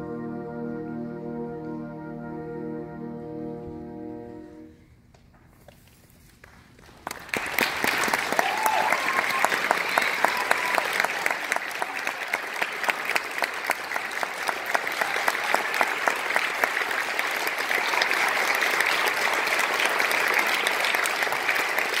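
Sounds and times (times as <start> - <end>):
audience applauding: 6.4 - 22.0.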